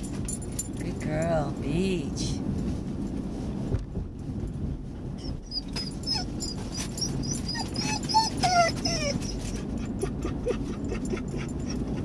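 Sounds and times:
dog whining: 5.2 - 12.0.

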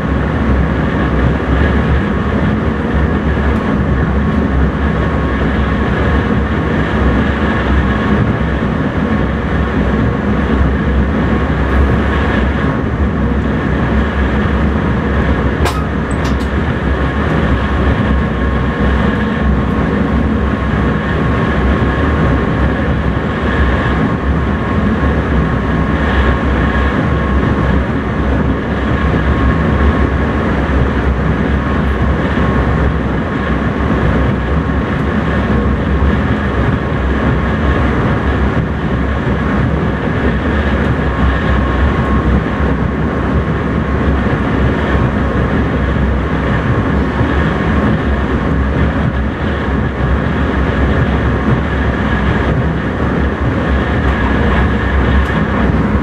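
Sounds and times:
electric train rumble and rail noise: 0.0 - 56.0
sharp click: 15.6 - 16.6.

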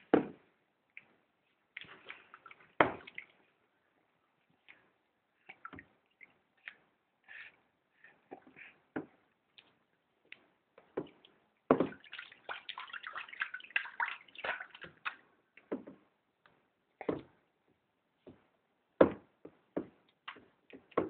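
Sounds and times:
water splashing in a bathtub: 0.2 - 9.9, 10.8 - 16.1
water dripping: 1.7 - 3.6, 4.6 - 7.0, 9.5 - 15.7.

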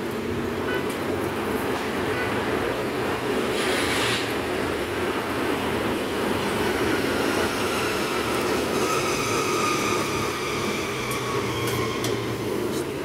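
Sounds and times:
engine whine: 3.5 - 13.0.

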